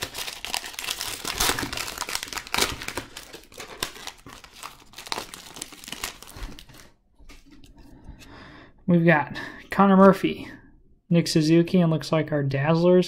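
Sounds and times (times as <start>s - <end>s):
card pack wrapper crinkling: 0.0s - 7.6s.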